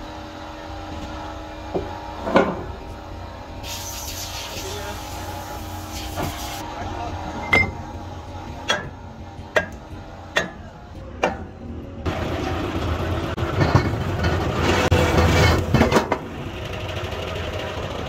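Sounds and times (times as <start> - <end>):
hydraulic press humming and rattling: 0.0 - 18.0
metal-on-metal knocks: 8.6 - 11.5.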